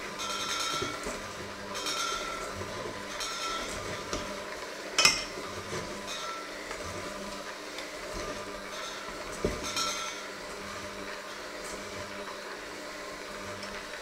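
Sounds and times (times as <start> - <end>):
electric hand mixer running: 0.0 - 14.0
beaters clanking against metal bowl: 0.2 - 4.4, 5.0 - 5.4, 8.7 - 10.3.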